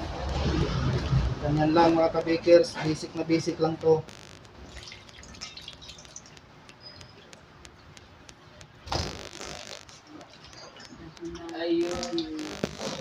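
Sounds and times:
wet dabbing of dough in water: 4.5 - 8.8, 9.8 - 12.4.

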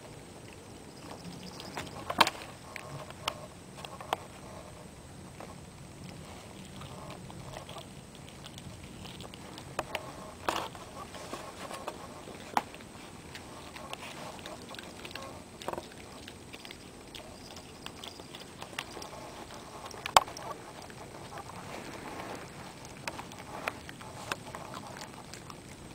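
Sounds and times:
dog chewing rawhide: 5.4 - 25.9.

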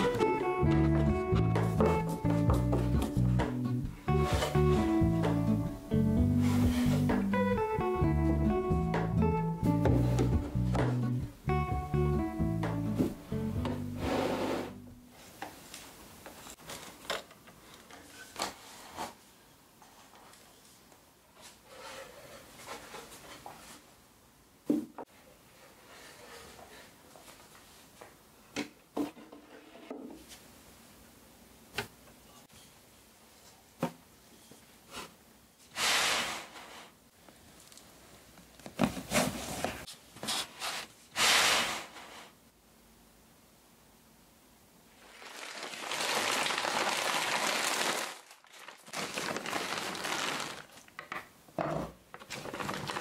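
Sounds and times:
wood scuffing: 0.0 - 5.4
brushing slide on shelf: 14.0 - 14.8, 34.9 - 37.0, 39.1 - 42.4.

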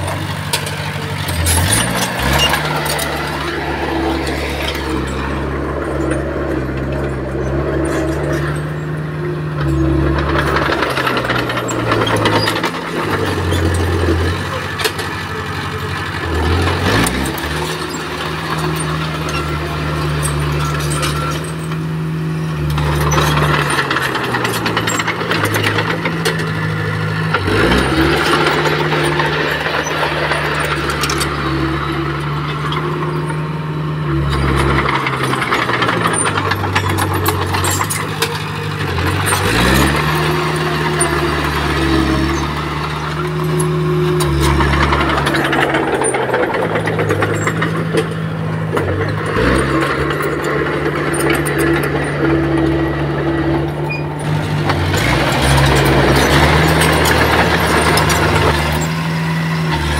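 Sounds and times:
bulldozer diesel engine under load: 0.0 - 59.9
metallic rattling: 34.1 - 59.2.

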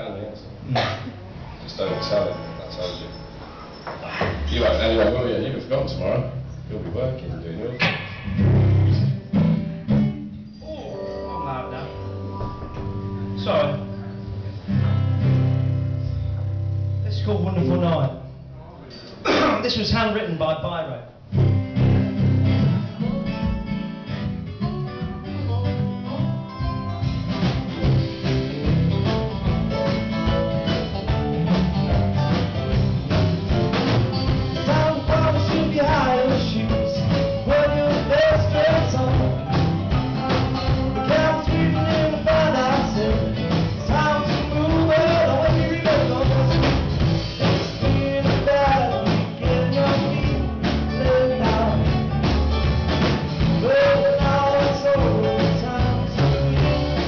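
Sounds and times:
live band playing: 1.0 - 19.2, 21.1 - 57.0
male lead vocal: 34.5 - 39.6, 40.2 - 47.0, 47.6 - 52.2, 53.4 - 57.0.

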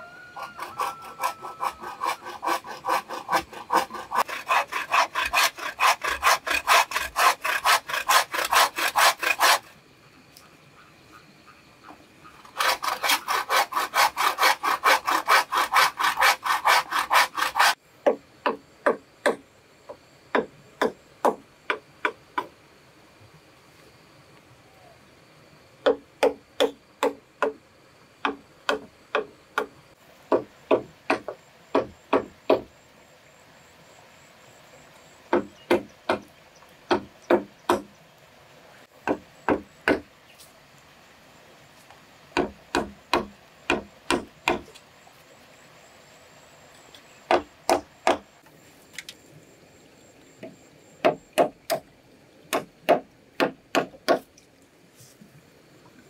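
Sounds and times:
hand tool striking wood: 12.6 - 19.4, 20.3 - 22.5, 25.8 - 27.6, 28.2 - 29.7, 30.3 - 32.7, 35.3 - 36.3, 36.9 - 37.9, 39.0 - 40.1, 42.4 - 44.7, 47.3 - 48.2, 51.0 - 51.8, 52.5 - 54.3.

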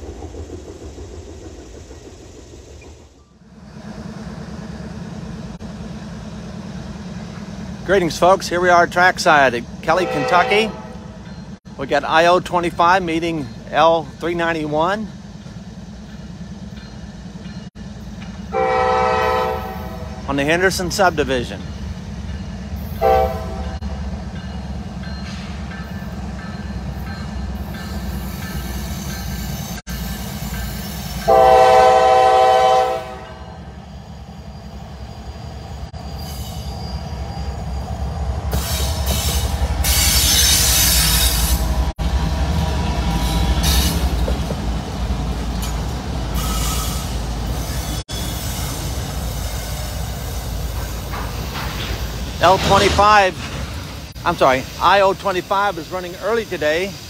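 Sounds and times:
train rumbling past: 0.0 - 57.0
locomotive air horn blasts: 9.9 - 11.0, 18.5 - 20.2, 23.0 - 23.8, 31.2 - 33.4
hissing wheels on rails: 11.2 - 57.0.

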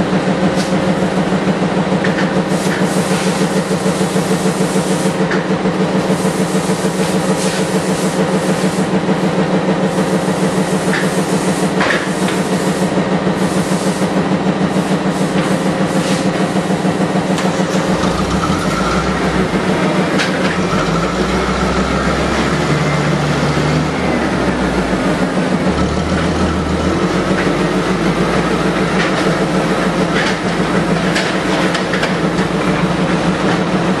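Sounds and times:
heavy machinery low pulsing: 14.2 - 34.0
deep drone: 17.4 - 30.6.

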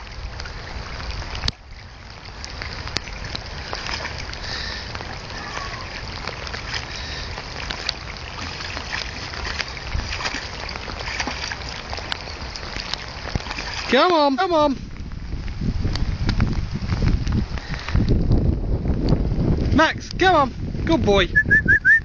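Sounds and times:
water sloshing and splashing: 0.0 - 21.0
steady low rumble: 14.6 - 21.8.

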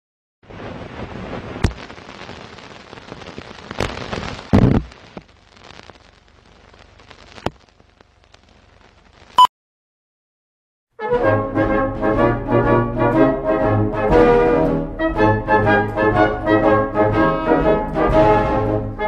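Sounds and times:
film crackle and hiss: 0.4 - 9.4
sharp pops and clicks: 1.6 - 2.4, 3.0 - 9.4.

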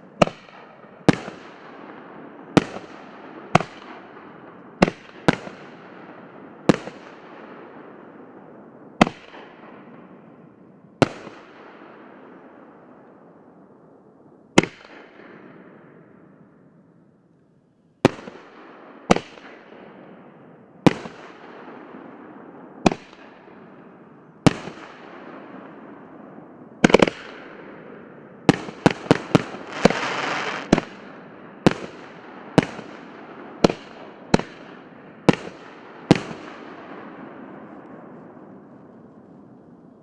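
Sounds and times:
fireworks bangs: 28.4 - 40.0
fireworks hissing crackle: 29.6 - 30.7.

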